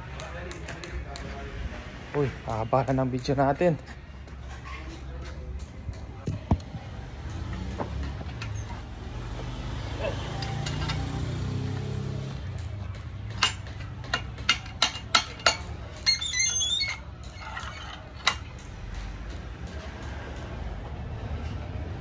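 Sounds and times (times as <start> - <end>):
hard objects clicking and knocking: 12.4 - 20.6.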